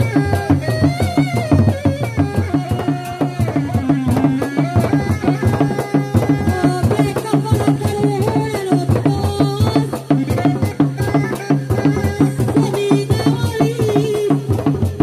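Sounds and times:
fast drum beating: 0:00.0 - 0:15.0.

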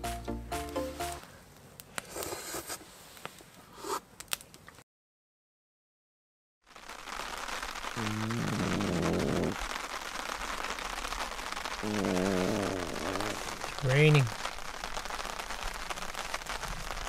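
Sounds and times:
rain falling: 0:06.6 - 0:17.0.

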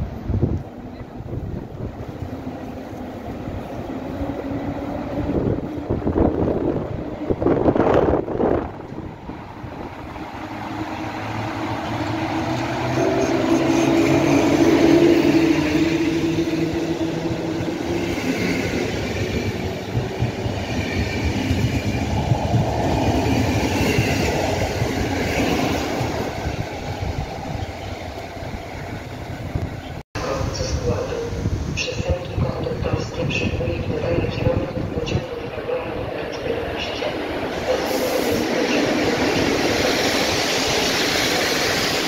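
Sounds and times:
electric locomotive passing: 0:00.0 - 0:42.0.

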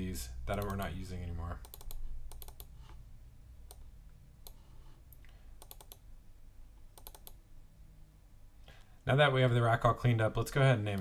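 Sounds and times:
mouse and keyboard clicks: 0:01.6 - 0:02.8, 0:05.6 - 0:06.0, 0:06.9 - 0:07.4.

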